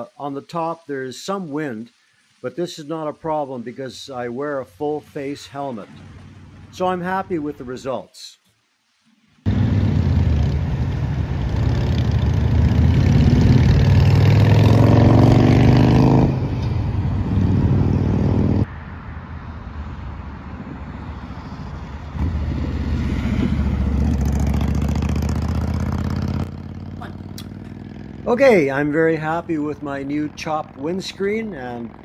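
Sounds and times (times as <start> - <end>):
motorcycle engine accelerating past: 9.5 - 18.6, 22.1 - 28.4.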